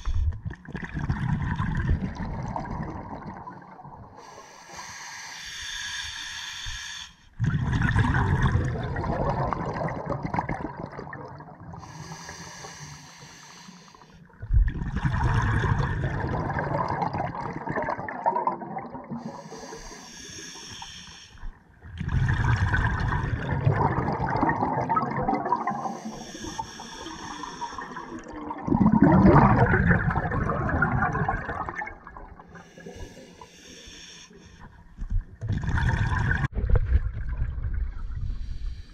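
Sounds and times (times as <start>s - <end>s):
exhaled bubbles rushing: 0.4s - 4.1s, 7.4s - 11.8s, 14.4s - 19.3s, 21.9s - 26.0s, 27.8s - 32.5s, 35.3s - 38.4s
regulator inhale hiss: 4.2s - 7.3s, 11.8s - 14.2s, 19.2s - 21.6s, 25.8s - 28.2s, 32.6s - 34.7s, 38.4s - 38.9s.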